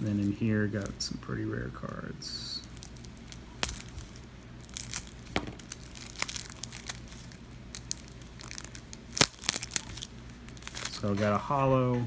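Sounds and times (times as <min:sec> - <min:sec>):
plastic wrapper crinkling and tearing: 0:02.5 - 0:11.2.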